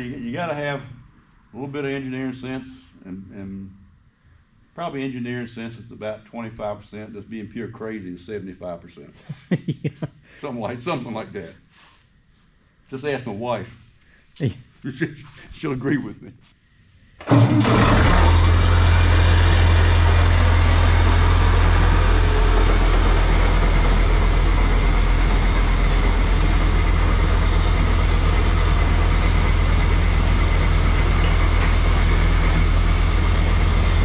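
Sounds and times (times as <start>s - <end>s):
tractor diesel engine running: 17.3s - 34.0s.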